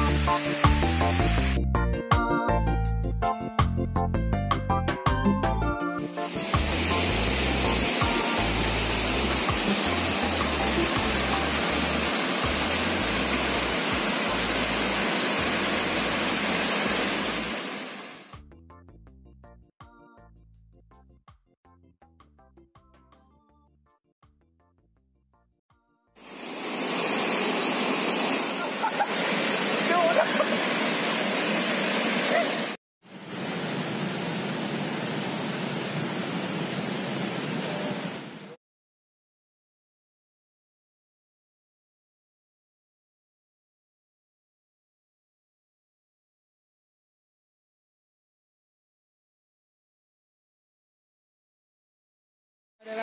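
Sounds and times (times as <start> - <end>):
waterfall rushing: 0.0 - 1.5, 6.1 - 18.3, 26.2 - 38.5.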